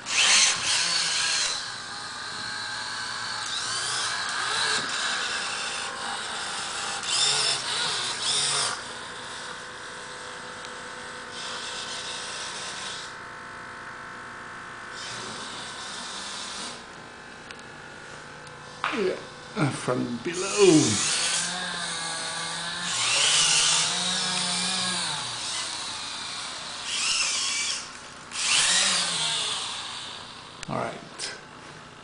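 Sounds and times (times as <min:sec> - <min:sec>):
servo motors whirring: 0:00.0 - 0:13.2, 0:15.0 - 0:16.9, 0:20.3 - 0:30.6.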